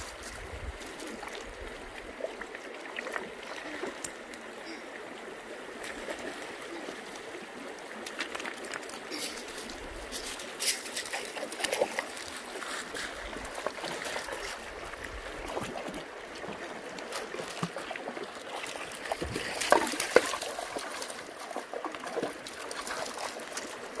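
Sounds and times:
creek flowing over stones: 0.0 - 24.0
sharp splashes and knocks: 17.1 - 17.9, 18.5 - 23.7.

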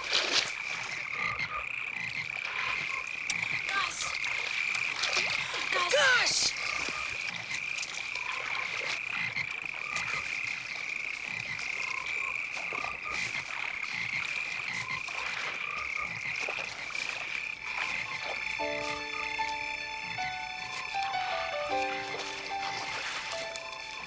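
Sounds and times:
frogs calling: 0.0 - 24.0
soft music with sustained notes: 17.6 - 24.0.

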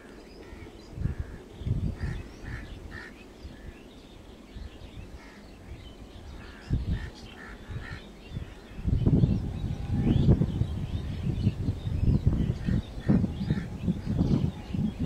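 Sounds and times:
birds calling: 0.0 - 15.0
faint open-air background noise: 0.0 - 15.0.

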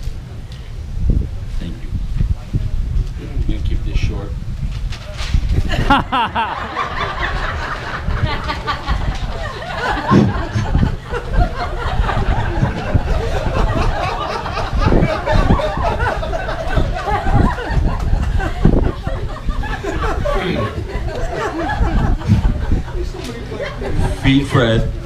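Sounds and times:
crowd laughing: 5.5 - 25.0
people talking: 19.6 - 25.0.

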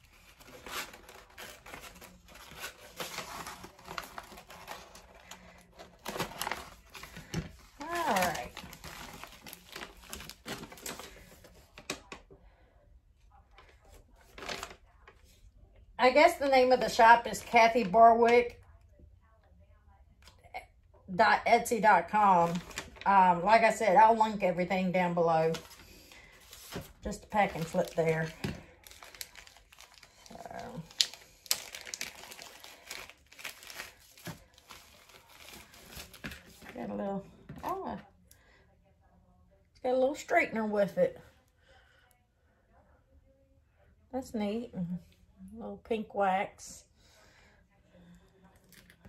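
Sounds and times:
paper rustling and crinkling: 0.0 - 12.2, 13.6 - 15.4, 22.3 - 23.1, 25.4 - 36.9.

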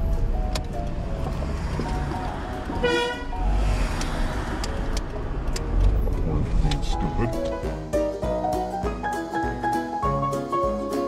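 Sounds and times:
car road noise rumble: 0.0 - 7.8
background music: 0.0 - 11.0
short car horn toot: 2.8 - 3.3.

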